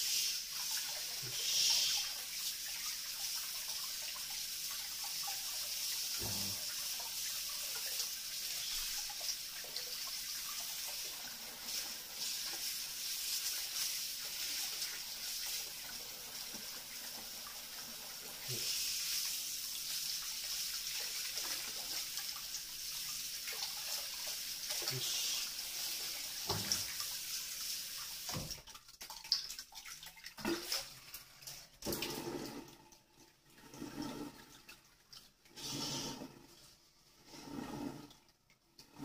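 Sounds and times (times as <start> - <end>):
tap water running into sink: 0.0 - 36.3.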